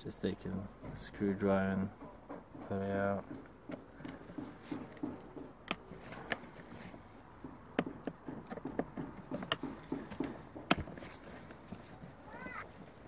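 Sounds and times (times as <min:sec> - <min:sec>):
sharp knocks on plastic: 0:02.0 - 0:06.6, 0:07.2 - 0:12.6
screwdriver clicking and scraping: 0:04.0 - 0:07.0.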